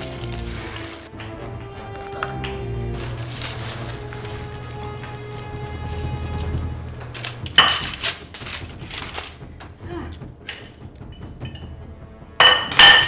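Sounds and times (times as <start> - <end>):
aluminium foil crinkling: 0.0 - 9.5
dry noodles crackling: 0.0 - 9.5.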